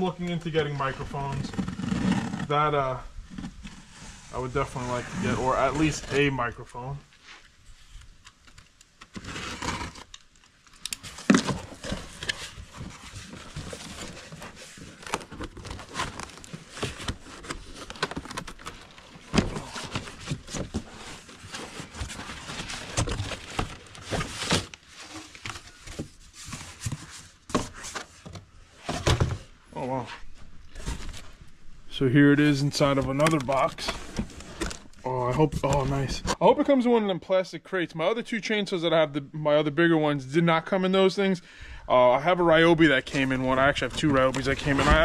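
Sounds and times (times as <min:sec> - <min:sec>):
cardboard scraping and rustling: 0:00.6 - 0:06.4, 0:09.0 - 0:10.2, 0:11.0 - 0:29.6, 0:30.2 - 0:31.4, 0:32.4 - 0:36.4, 0:42.5 - 0:45.0.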